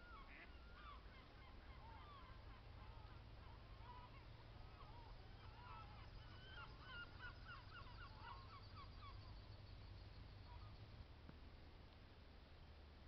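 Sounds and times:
distant waterbirds honking: 0.0 - 10.8.

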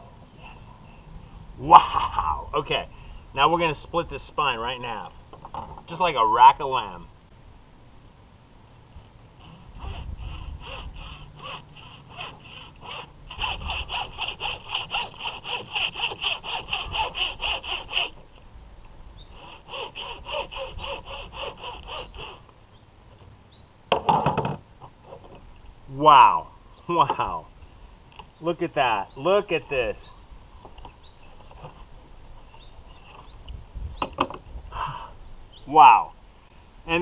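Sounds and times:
hacksaw rasping through fish bone: 9.5 - 18.1.

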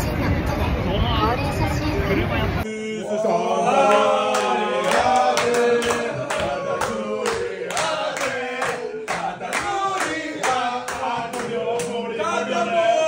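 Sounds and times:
group singing: 2.6 - 13.0
hand-clapping in time: 3.9 - 12.0.

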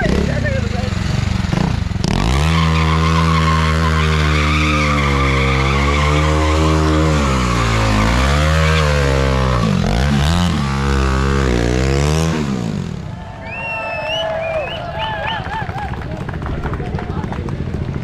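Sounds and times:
motorcycle engine revving high: 0.0 - 13.2
tyre squealing on tarmac: 2.2 - 9.7.

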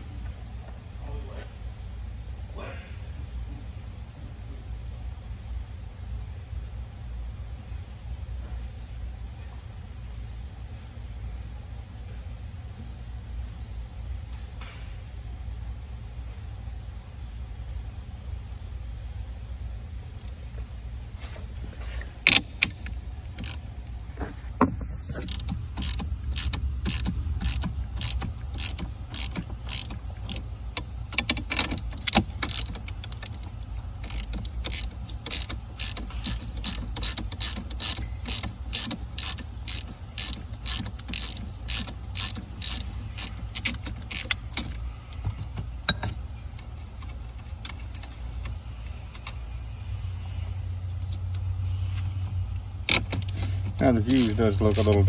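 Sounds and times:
low steady hum: 0.0 - 55.0
socket ratchet clicking: 22.2 - 23.6, 25.2 - 49.4, 52.8 - 55.0.

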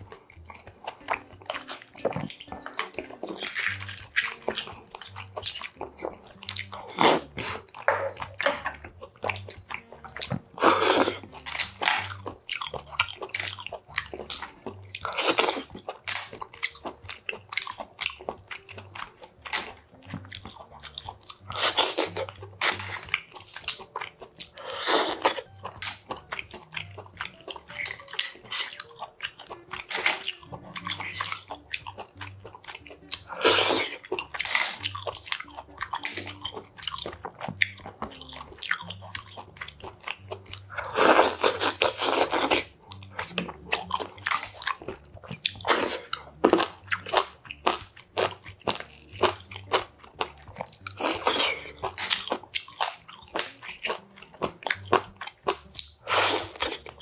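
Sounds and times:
chewing: 0.0 - 57.0
slurping broth: 6.8 - 7.9, 10.6 - 12.2, 24.4 - 25.4, 40.6 - 47.1, 55.8 - 56.9.

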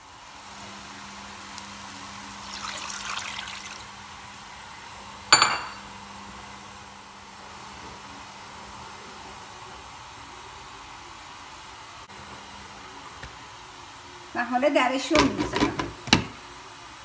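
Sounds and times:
water pouring into pot: 2.2 - 4.0.

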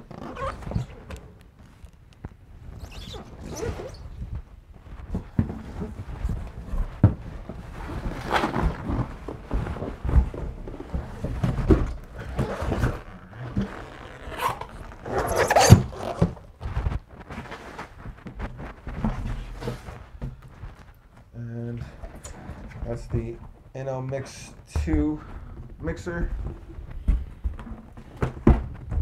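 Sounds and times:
bubble wrap rustling: 0.0 - 29.0
cardboard scraping and rubbing: 2.7 - 21.1.

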